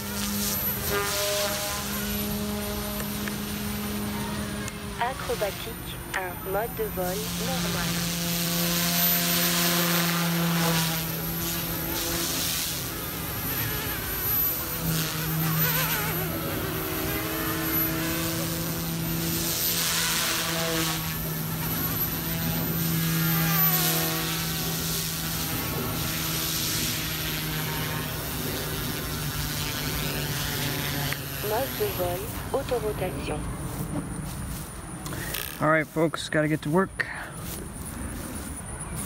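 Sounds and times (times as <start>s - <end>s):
rotor blade rushes: 0.0s - 33.9s
rc helicopter motor whine: 0.0s - 36.2s.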